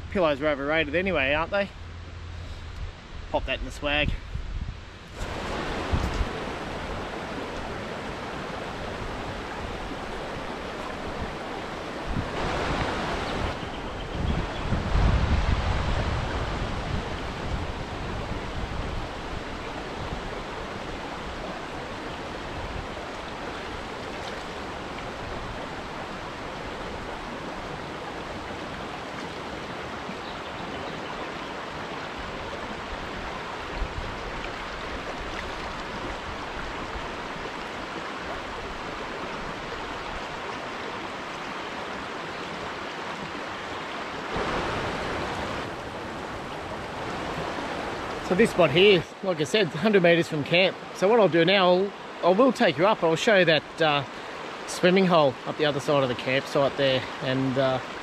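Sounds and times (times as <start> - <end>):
river rushing over stones: 4.9 - 58.0.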